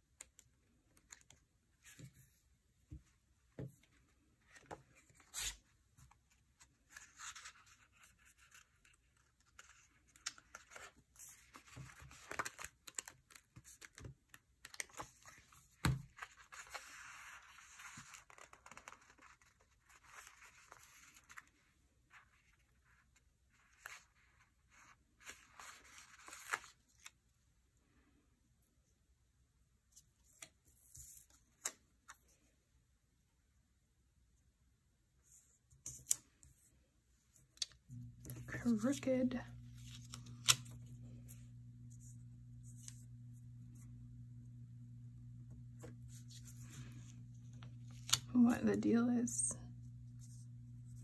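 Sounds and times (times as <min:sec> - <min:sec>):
paper rustling: 0:03.9 - 0:22.9, 0:23.5 - 0:27.2, 0:37.6 - 0:41.4.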